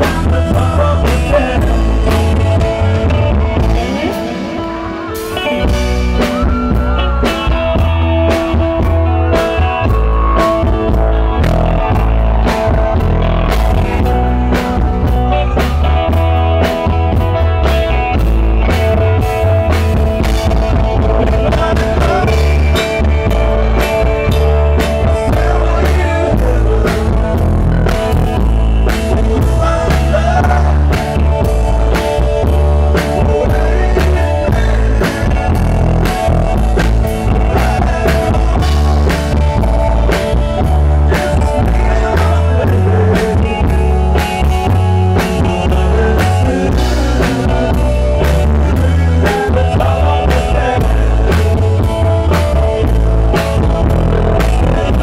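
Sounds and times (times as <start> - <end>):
man singing into microphone: 0.0 - 7.5, 20.9 - 36.4, 37.2 - 52.0, 53.6 - 55.0
live rock band playing: 0.0 - 55.0.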